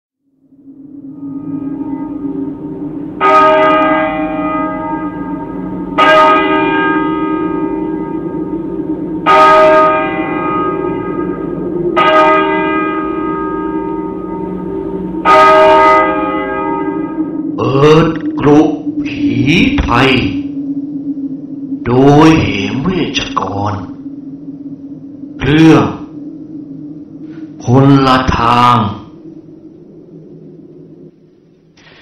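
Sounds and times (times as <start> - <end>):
steady low drone: 0.2 - 32.0
large bell tolling: 0.7 - 20.6.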